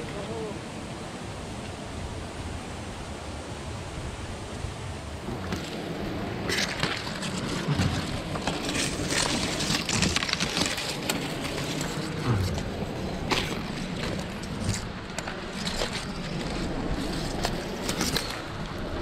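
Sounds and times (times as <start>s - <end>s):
dry stalks rustling and scraping: 5.2s - 19.0s
footsteps crunching through dry stalks: 5.5s - 18.6s.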